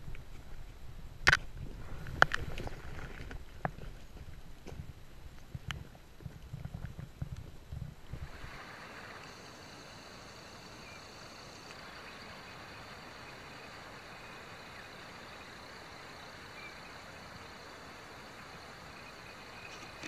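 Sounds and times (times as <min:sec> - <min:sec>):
microphone buffeting and brushing: 0:00.0 - 0:08.6
distant waterfall rushing: 0:08.1 - 0:20.0.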